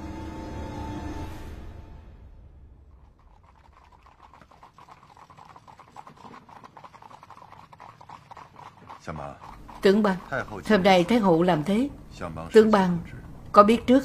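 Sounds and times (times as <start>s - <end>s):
hooves clip-clopping on pavement: 3.0s - 12.0s.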